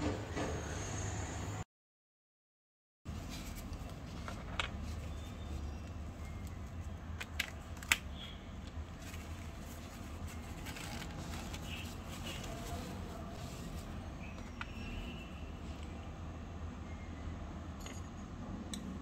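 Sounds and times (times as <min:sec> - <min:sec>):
paper towel crinkling: 0:08.9 - 0:14.3.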